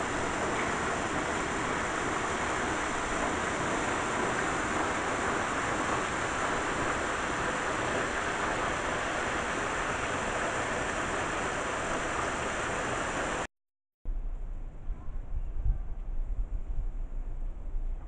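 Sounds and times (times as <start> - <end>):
steady rushing hiss: 0.0 - 13.5.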